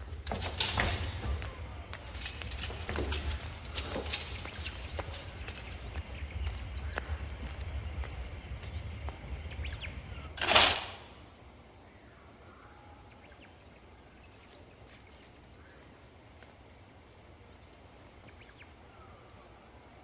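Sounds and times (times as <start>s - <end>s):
low rumble: 0.0s - 11.4s.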